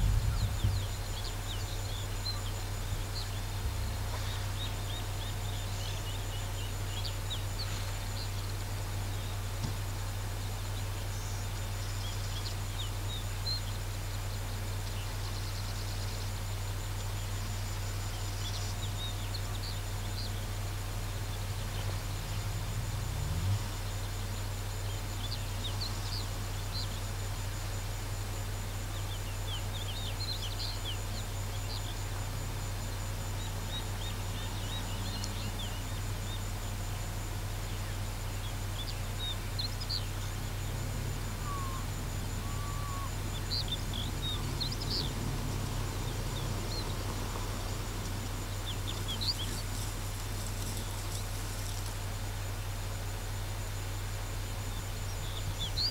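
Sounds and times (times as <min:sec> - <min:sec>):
small birds chirping: 0:00.0 - 0:55.9
steady low hum: 0:00.0 - 0:55.9
faint high whine: 0:24.8 - 0:55.9.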